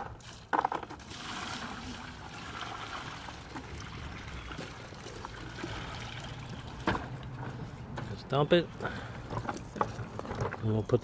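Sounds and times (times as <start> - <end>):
water pouring onto gravel: 0.2 - 6.8.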